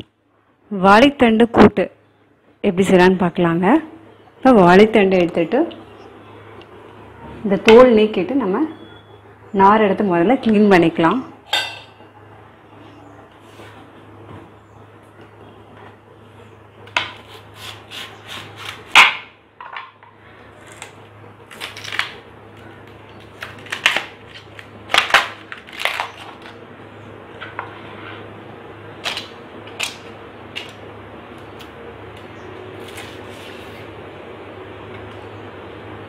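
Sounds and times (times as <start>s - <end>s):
steady low hum: 0.0s - 36.0s
banana stem cracking and snapping: 20.6s - 22.2s, 22.9s - 26.6s, 29.0s - 30.8s.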